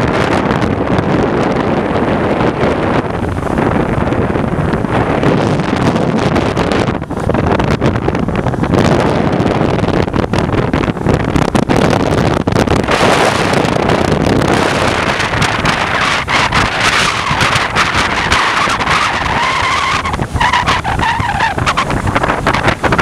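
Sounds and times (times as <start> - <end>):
road noise: 0.0 - 23.0
wind buffeting microphone: 0.0 - 23.0.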